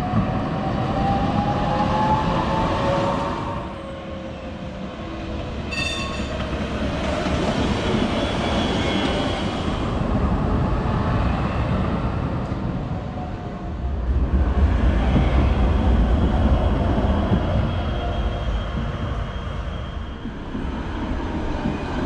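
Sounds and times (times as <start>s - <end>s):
tram running on rails: 0.0s - 22.0s
high squeal: 5.7s - 6.4s, 17.3s - 20.4s.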